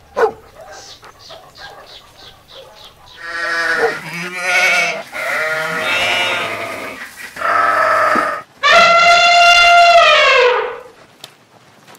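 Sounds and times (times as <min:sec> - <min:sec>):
sheep bleating: 0:03.2 - 0:10.5.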